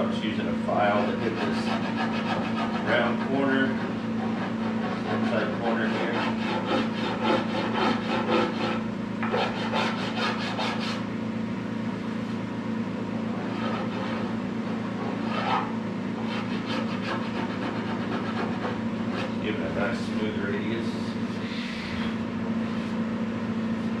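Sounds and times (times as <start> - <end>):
rubbing strokes on wood: 0.9 - 11.0, 13.4 - 19.6.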